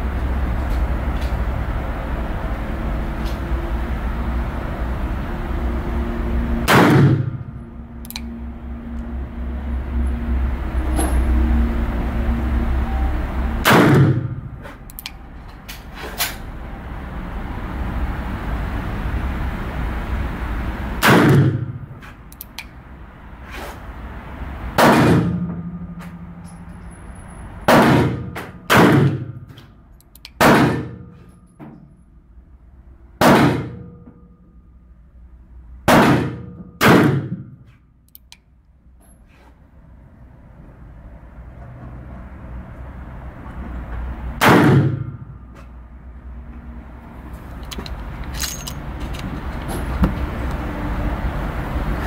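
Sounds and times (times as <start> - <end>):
light click: 8.0 - 8.3.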